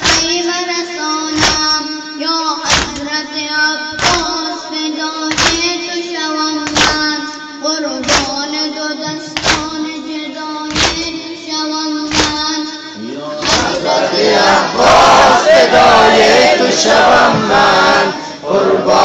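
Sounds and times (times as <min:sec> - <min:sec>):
men chanting in a group: 0:12.9 - 0:19.0.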